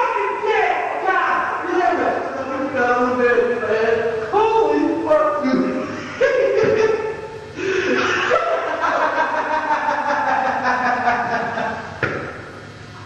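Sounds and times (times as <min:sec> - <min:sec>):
man laughing: 0:05.8 - 0:11.9.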